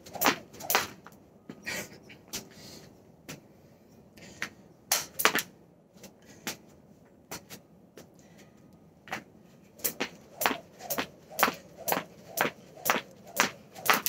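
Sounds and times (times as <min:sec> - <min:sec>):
jump rope handles clicking: 0:09.8 - 0:14.0
jump rope slapping floor: 0:09.8 - 0:14.0.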